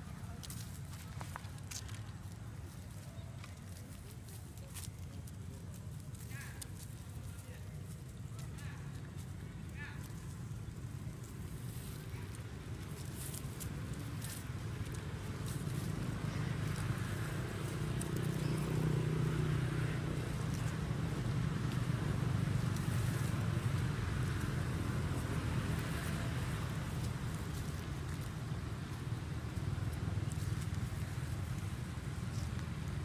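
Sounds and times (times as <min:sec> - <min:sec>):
low engine rumble: 0:00.0 - 0:33.0.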